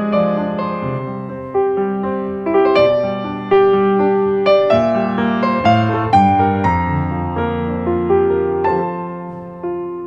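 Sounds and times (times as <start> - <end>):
soft piano piece: 0.0 - 10.0.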